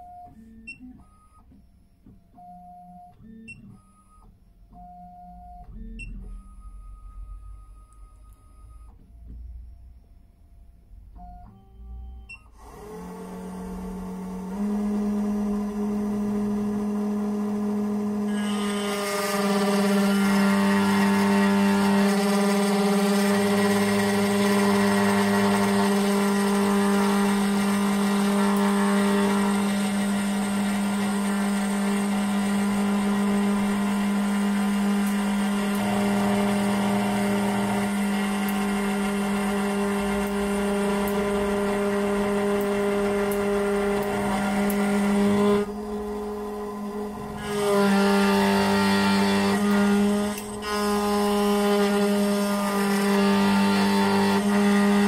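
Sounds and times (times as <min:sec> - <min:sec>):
machine motor whine: 0:11.1 - 0:55.0
cutter grinding key blade: 0:48.6 - 0:53.0.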